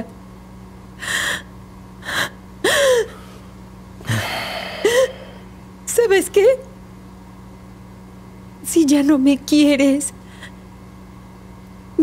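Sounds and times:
woman sobbing: 1.0s - 3.3s, 4.1s - 5.4s.

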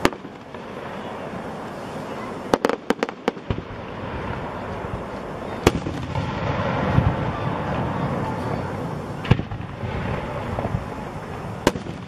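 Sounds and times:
fireworks cracking: 0.0s - 12.0s
outdoor background noise: 0.0s - 12.0s.

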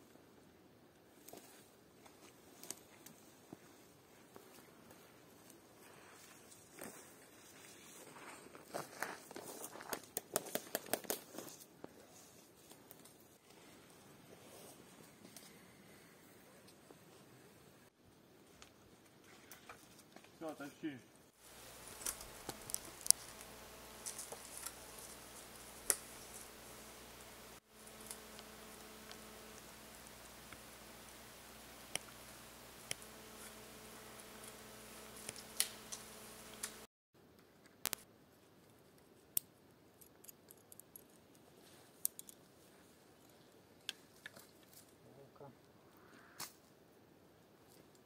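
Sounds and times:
faint steady hiss: 11.8s - 40.0s
branches and sticks snapping: 21.4s - 36.8s
sharp cracks: 21.4s - 36.9s
short sharp clicks and snaps: 37.8s - 38.0s.

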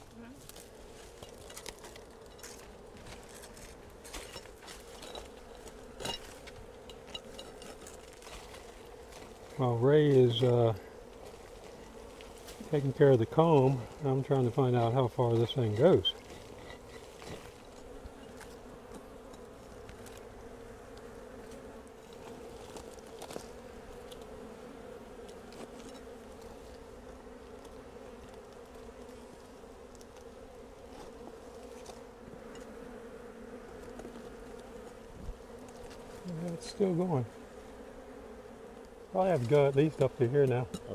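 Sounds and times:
honeybees buzzing: 0.0s - 40.9s
hand tool clicks and scrapes: 15.8s - 17.5s.

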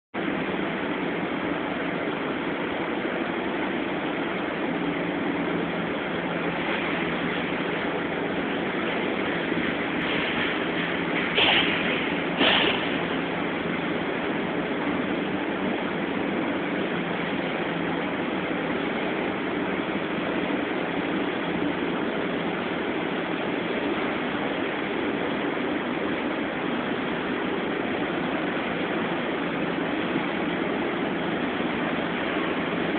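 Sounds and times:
factory machinery din: 0.2s - 32.9s.

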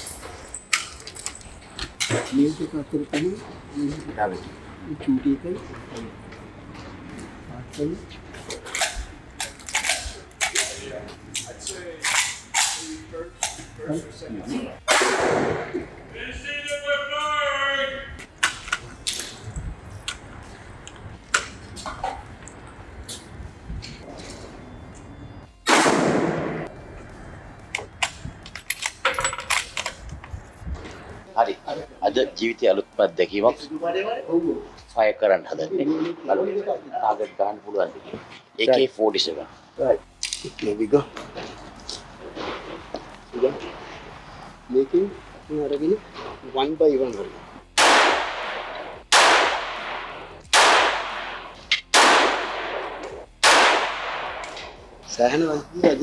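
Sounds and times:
rifle shot: 14.9s - 15.7s, 25.6s - 26.6s, 47.8s - 54.7s.

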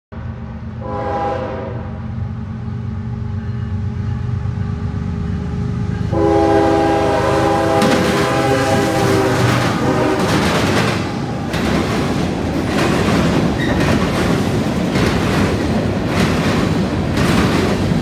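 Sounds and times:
locomotive engines rumbling: 0.1s - 18.0s
train horn chord: 0.8s - 2.2s, 3.4s - 10.5s
wheels clattering on rails: 7.7s - 18.0s.

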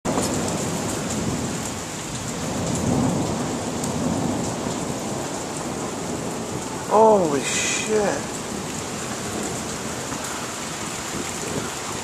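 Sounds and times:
heavy rain pouring: 0.1s - 12.0s
thunder rumbling: 2.3s - 10.2s.

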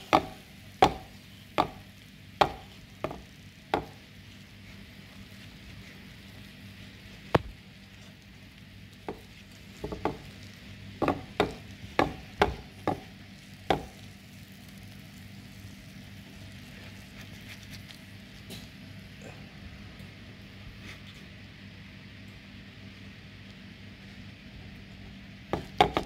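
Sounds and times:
spatula tapping and cracking rice crust: 0.0s - 16.1s, 25.4s - 26.0s
faint sizzle: 0.0s - 26.0s.

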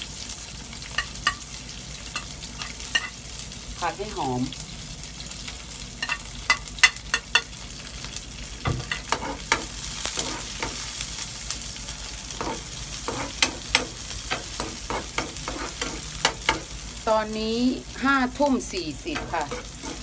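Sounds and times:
garlic sizzling in hot oil: 0.0s - 20.0s
metal spoon scraping a pan: 0.9s - 1.5s, 2.1s - 3.2s, 6.0s - 7.6s, 8.7s - 11.0s, 12.0s - 16.8s, 18.8s - 20.0s.

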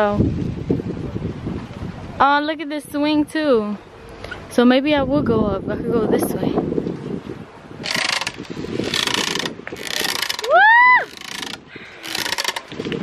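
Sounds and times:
noisy rush of swinging: 7.6s - 13.0s
rope swing creaking: 7.8s - 13.0s.

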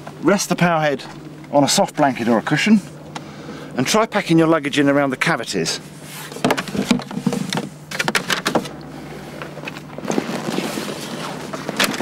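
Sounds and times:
fabric bag rustling: 9.9s - 12.0s.

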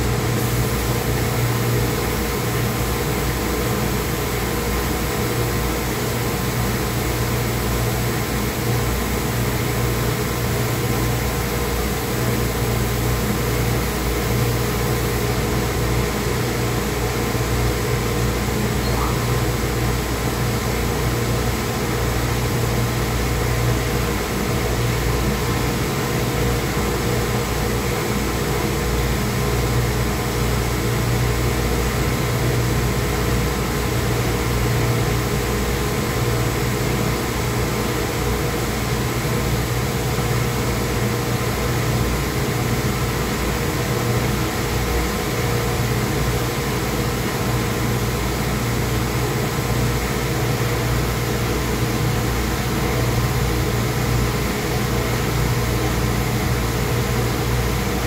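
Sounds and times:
machinery humming: 9.3s - 21.4s.

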